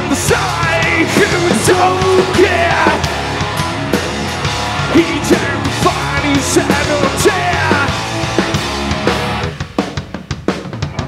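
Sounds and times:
person singing: 0.0 - 3.4, 4.8 - 8.0
electric guitar: 0.0 - 9.9
bass guitar: 0.0 - 11.0
drums: 0.0 - 11.0.

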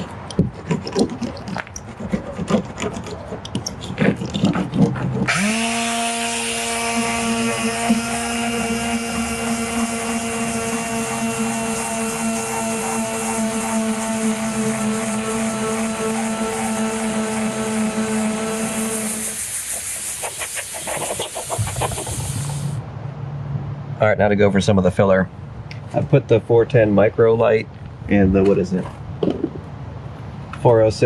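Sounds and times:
roller clicking and scraping: 0.0 - 5.4
electric sander whining: 5.2 - 19.5.

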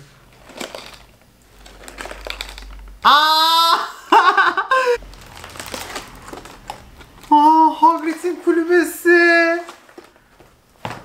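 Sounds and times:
book pages rustling and flapping: 0.3 - 3.0, 5.0 - 11.0
man exclaiming: 3.0 - 5.0, 7.3 - 9.6
laughter: 3.9 - 5.0.

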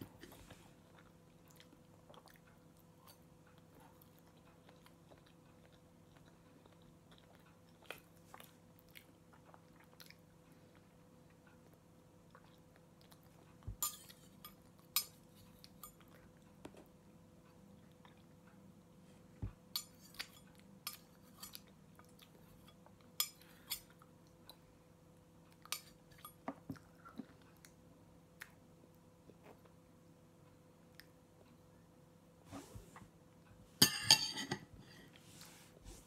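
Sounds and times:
cutlery clinking on plate: 33.8 - 34.7.

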